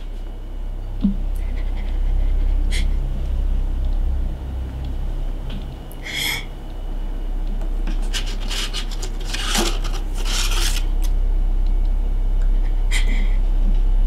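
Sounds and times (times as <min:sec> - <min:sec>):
steady low hum: 0:00.0 - 0:14.0
cardboard and paper rustling: 0:07.9 - 0:10.9.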